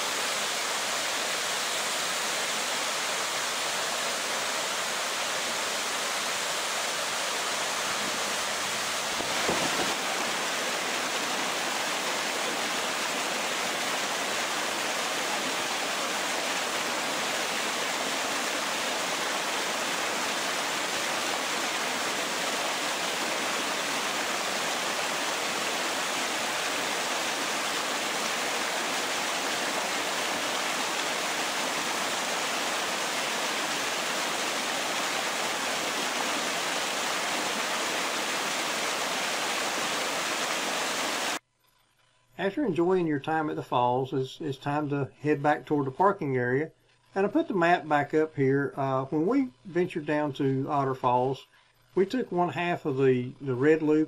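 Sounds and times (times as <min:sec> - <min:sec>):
small waterfall rushing over rocks: 0:00.0 - 0:41.4.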